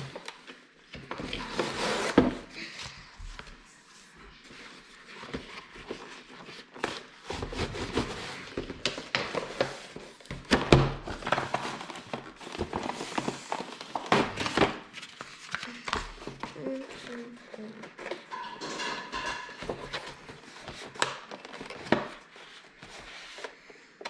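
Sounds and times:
packaging rustling: 5.0s - 18.3s, 19.6s - 23.7s.

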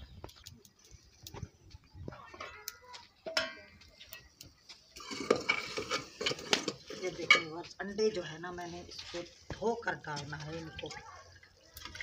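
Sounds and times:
ladle scraping in steel pot: 5.0s - 7.5s
steel cookware clinking: 5.0s - 7.6s.

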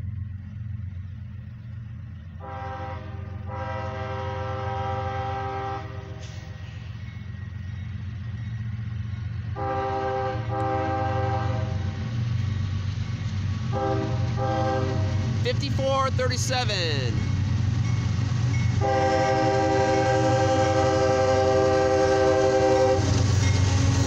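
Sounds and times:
train rumble: 0.0s - 24.0s
locomotive air horn blasts: 2.4s - 6.6s, 9.6s - 11.9s, 13.7s - 15.8s, 18.8s - 23.2s.

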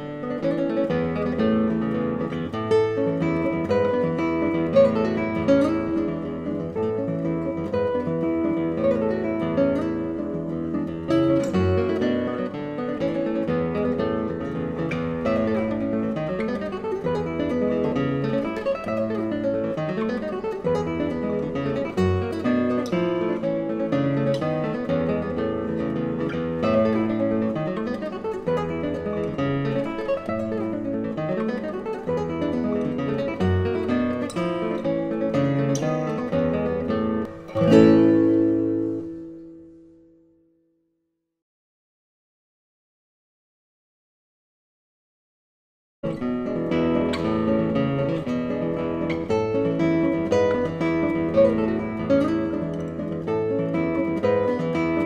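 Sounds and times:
acoustic guitar music: 0.0s - 40.8s, 46.0s - 55.0s.

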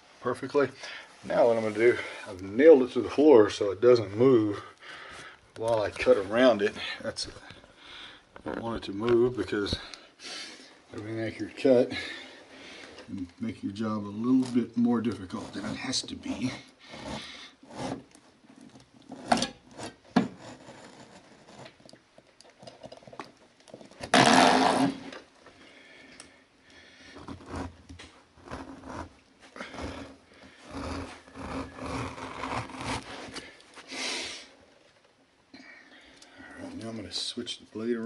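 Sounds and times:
knife cutting through carpet: 15.3s - 18.2s, 24.2s - 25.0s, 27.2s - 33.6s.

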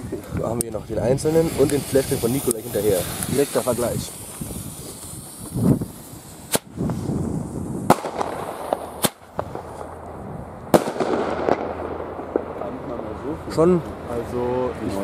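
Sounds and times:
firecracker bangs: 1.4s - 6.8s, 7.8s - 10.0s, 10.7s - 13.7s.

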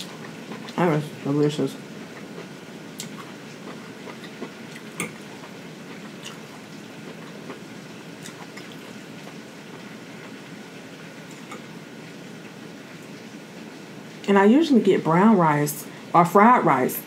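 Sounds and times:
rain hissing: 0.0s - 16.3s.

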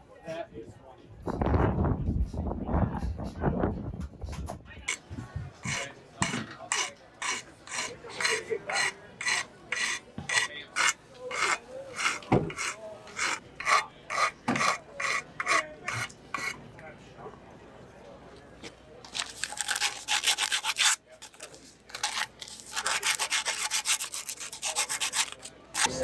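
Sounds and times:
file rasping on metal: 5.6s - 16.6s, 19.4s - 21.0s, 21.9s - 26.0s.

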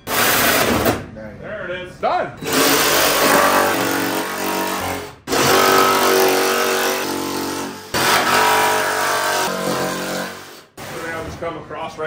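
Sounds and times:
jigsaw sawing through fiberglass: 2.4s - 11.1s.

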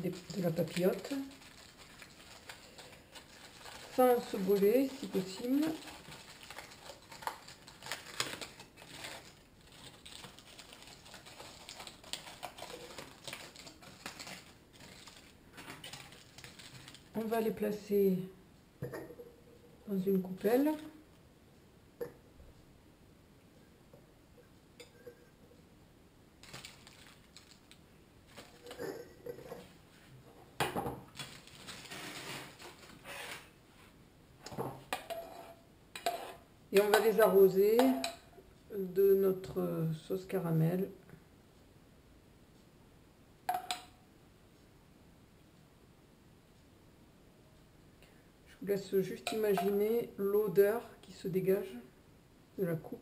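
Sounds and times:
aluminium foil crinkling: 0.0s - 17.3s, 26.4s - 29.4s, 31.1s - 33.5s.

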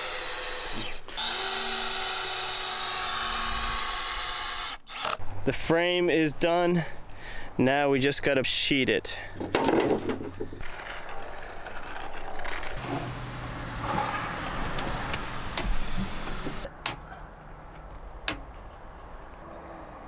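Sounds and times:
cordless drill driving screws: 0.0s - 5.2s.

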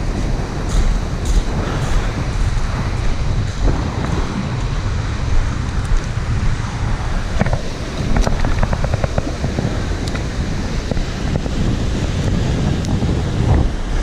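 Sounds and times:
footsteps on gravel: 0.0s - 4.7s
wind buffeting microphone: 0.0s - 14.0s.

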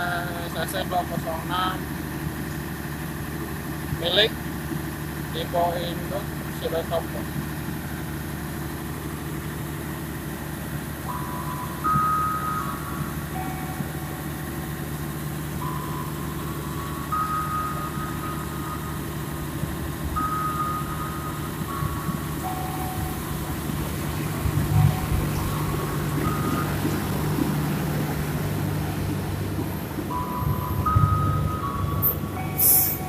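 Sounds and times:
locomotive engine drone: 0.0s - 33.0s
beeping tune: 10.7s - 33.0s.

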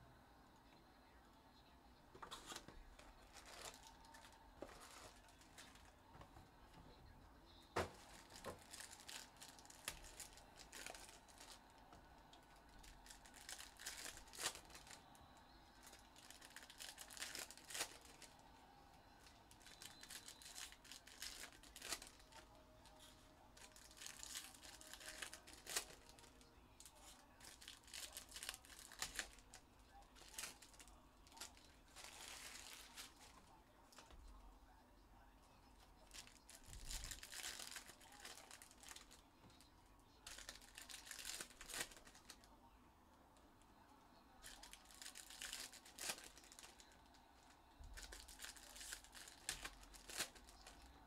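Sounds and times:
wrappers crinkling and tearing: 2.2s - 6.4s, 7.7s - 18.6s, 19.2s - 34.2s, 35.9s - 42.5s, 44.4s - 51.0s
cards clicking and rustling: 2.2s - 6.5s, 7.7s - 15.1s, 15.8s - 18.3s, 19.4s - 34.1s, 47.9s - 50.9s.

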